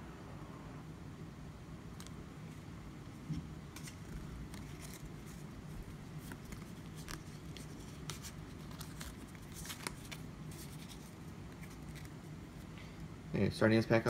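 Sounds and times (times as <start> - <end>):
low steady hum: 0.0 - 14.0
trading cards clicking and rustling: 3.3 - 12.8.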